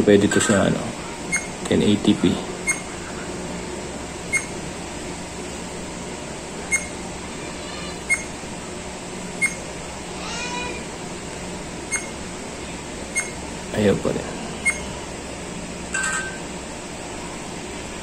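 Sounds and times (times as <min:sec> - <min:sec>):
steady room hum: 0:00.0 - 0:18.0
camera beeping: 0:01.3 - 0:01.6, 0:02.6 - 0:02.9, 0:04.3 - 0:04.6, 0:06.7 - 0:07.0, 0:08.0 - 0:08.4, 0:09.4 - 0:09.6, 0:11.9 - 0:12.2, 0:13.2 - 0:13.4, 0:14.6 - 0:14.9.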